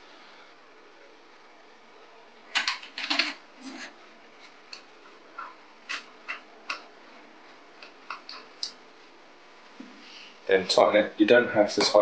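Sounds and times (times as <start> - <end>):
metal parts clicking and knocking: 2.5 - 3.4.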